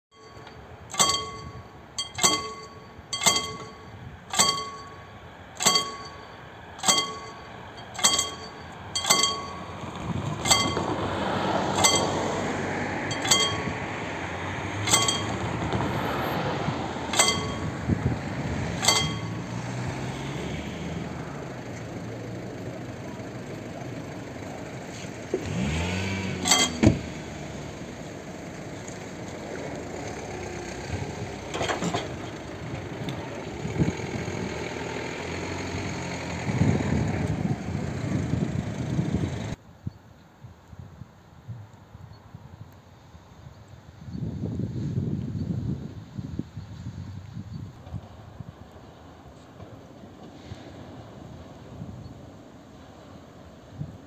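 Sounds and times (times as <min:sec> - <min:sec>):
level crossing bell ringing: 0:00.1 - 0:09.8, 0:10.4 - 0:11.0, 0:11.7 - 0:12.4, 0:13.1 - 0:13.9, 0:14.8 - 0:15.6, 0:17.1 - 0:17.9, 0:18.8 - 0:19.5
car driving past: 0:09.6 - 0:31.5.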